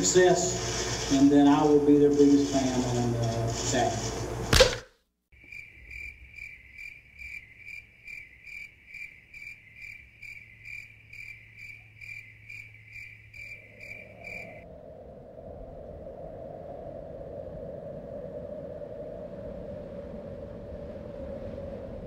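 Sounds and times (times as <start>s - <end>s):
crickets chirping: 5.4s - 22.0s.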